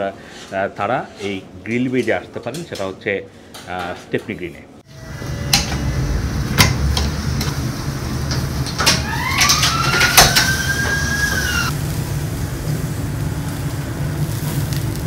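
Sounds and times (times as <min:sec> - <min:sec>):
steady low rumble: 0:04.9 - 0:08.8
high whine rising in pitch: 0:04.9 - 0:11.8.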